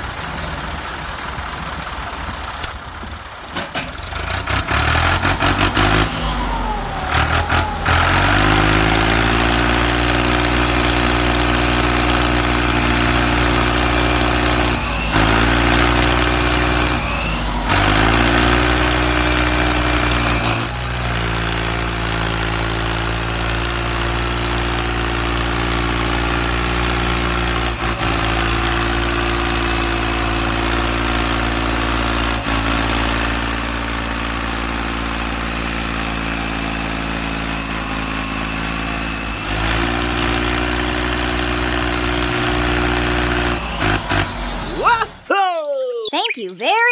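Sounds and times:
diesel tractor engine revving: 0:00.0 - 0:45.3.

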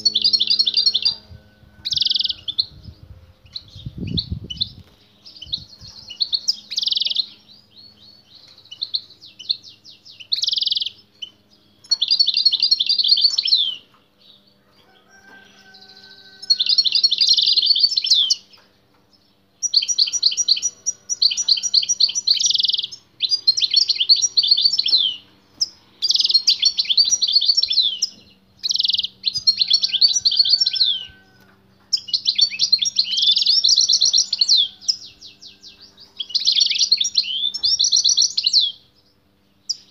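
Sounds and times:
goldfinch twittering trills: 0:03.4 - 0:13.8, 0:19.6 - 0:31.3, 0:31.9 - 0:38.8.

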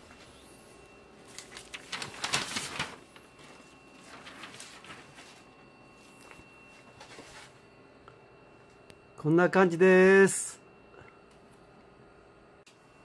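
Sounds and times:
paper rustling and crackling: 0:01.2 - 0:07.6.

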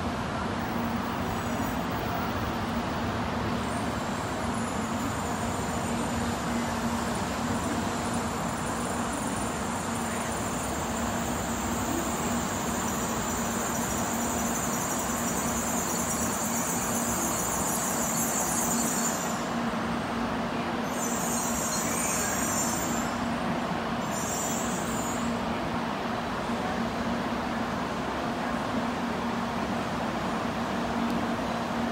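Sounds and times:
train rumbling and braking: 0:00.0 - 0:31.9
high-pitched brake squeal: 0:03.6 - 0:19.7, 0:20.8 - 0:23.4, 0:24.0 - 0:25.4.

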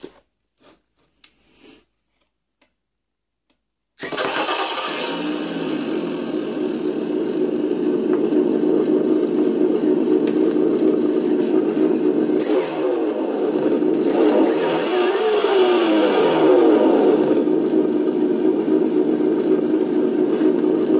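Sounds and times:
simulated engine sound from loudspeaker: 0:05.1 - 0:20.9.

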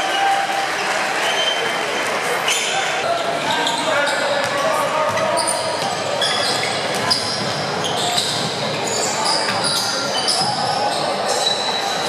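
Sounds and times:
murmur of crowd voices: 0:00.0 - 0:12.0
sneakers squeaking: 0:02.4 - 0:12.0.

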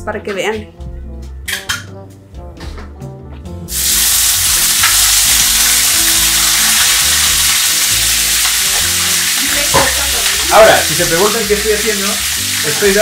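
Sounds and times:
mushrooms sizzling in frying pan: 0:03.7 - 0:13.0.

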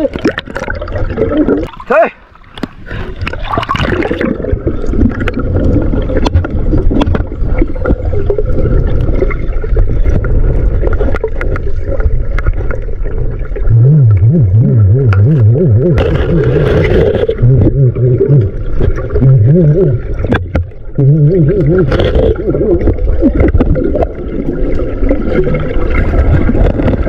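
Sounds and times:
underwater rumble of moving water: 0:00.0 - 0:27.0
clicks and crackles: 0:05.0 - 0:09.4
loud warbling low hum: 0:13.6 - 0:20.3.

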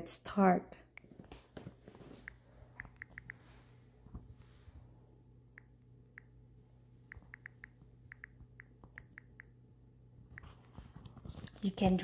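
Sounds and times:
faint low hum: 0:00.0 - 0:12.0
phone keyboard clicks: 0:02.2 - 0:03.4, 0:07.1 - 0:09.5.

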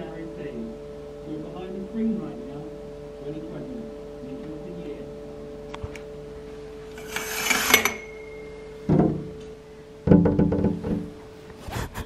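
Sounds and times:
knocking on glass door: 0:08.9 - 0:09.3, 0:10.1 - 0:11.1.

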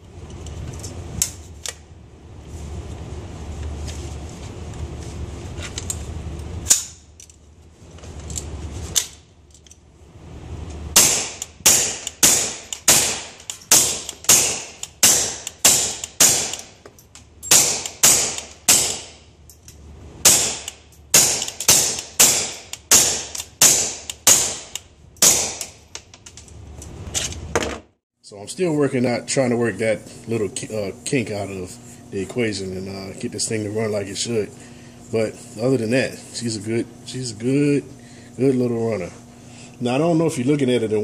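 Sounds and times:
rifle shots cracking: 0:10.9 - 0:16.7, 0:17.5 - 0:19.2, 0:20.2 - 0:25.8.

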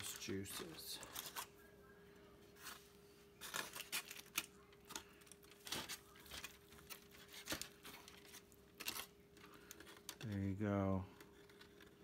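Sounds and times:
faint steady hum: 0:00.0 - 0:12.0
foil crinkling: 0:02.5 - 0:12.0.

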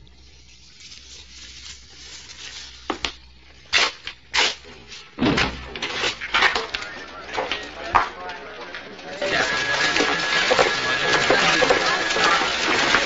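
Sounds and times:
heavy thud: 0:05.2 - 0:06.0.

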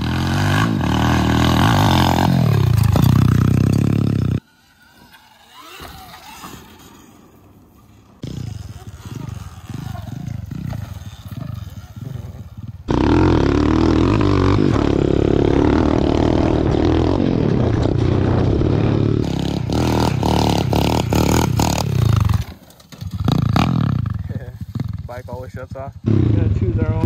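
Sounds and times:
pit bike engine running hard: 0:00.0 - 0:04.5, 0:07.9 - 0:27.0
rattling clatter over rough ground: 0:02.2 - 0:04.4, 0:20.9 - 0:25.4.

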